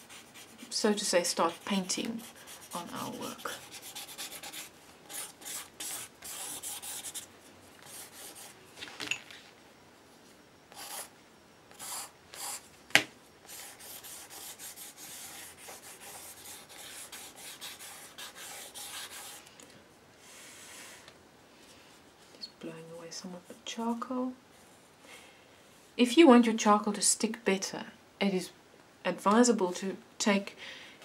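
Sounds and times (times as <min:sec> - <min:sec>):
charcoal scratching on paper: 0:00.0 - 0:08.5, 0:13.4 - 0:19.4.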